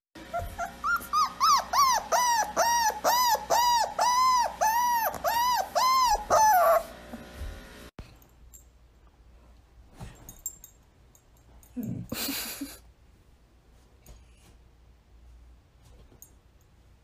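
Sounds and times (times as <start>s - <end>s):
dog whining: 0.2s - 7.0s.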